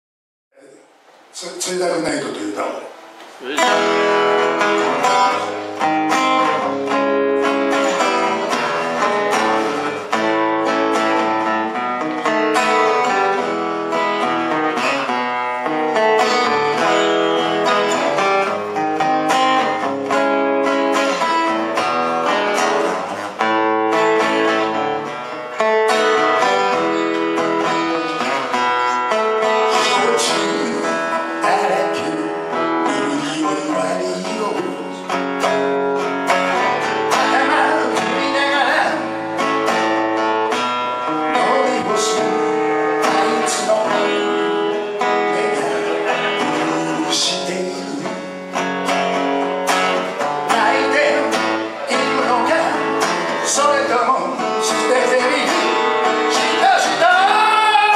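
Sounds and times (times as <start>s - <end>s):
acoustic guitar chords: 2.6s - 57.9s.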